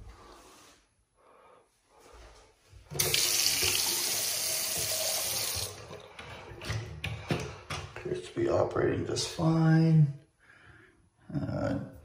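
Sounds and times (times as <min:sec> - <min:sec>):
tap water running into sink: 0:02.9 - 0:07.5.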